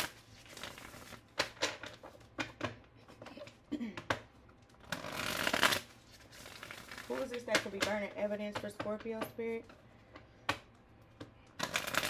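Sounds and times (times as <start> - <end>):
cards shuffled and tapped: 4.9 - 12.0.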